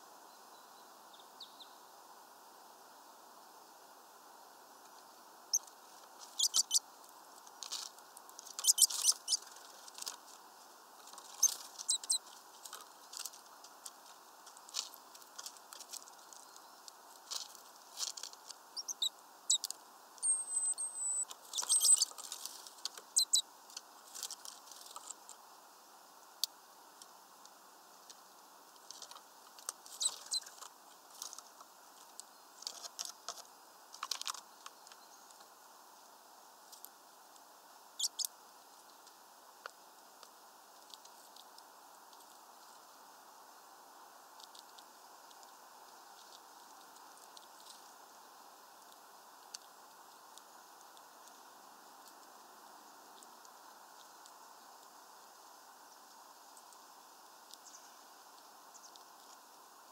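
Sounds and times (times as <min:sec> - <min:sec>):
bird chirp: 0:00.2 - 0:01.8, 0:06.3 - 0:06.8, 0:08.5 - 0:09.6, 0:11.4 - 0:12.3, 0:18.7 - 0:22.2, 0:23.1 - 0:23.5, 0:29.9 - 0:30.6, 0:38.0 - 0:38.3
birds pecking at a feeder: 0:04.9 - 0:25.5, 0:26.2 - 0:35.6.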